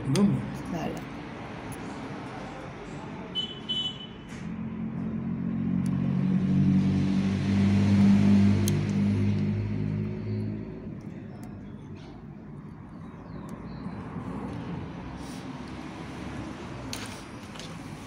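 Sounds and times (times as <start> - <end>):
vehicle driving past: 4.3 - 11.2.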